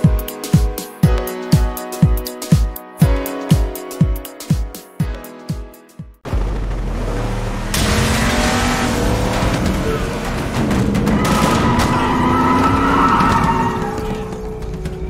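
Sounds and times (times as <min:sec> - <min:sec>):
truck engine revving: 0:06.2 - 0:15.0
tyres squealing: 0:09.3 - 0:15.0.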